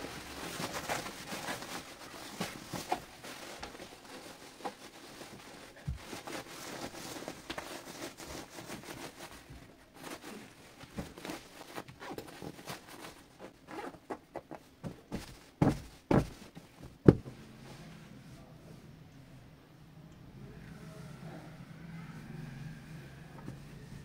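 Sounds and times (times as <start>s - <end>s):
cloth rustling and scratching: 0.0s - 18.0s
cushion thumps: 14.8s - 17.4s.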